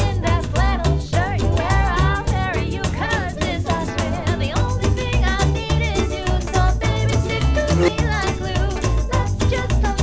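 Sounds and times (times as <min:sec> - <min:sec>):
song with vocals guitar and beat: 0:03.3 - 0:10.0.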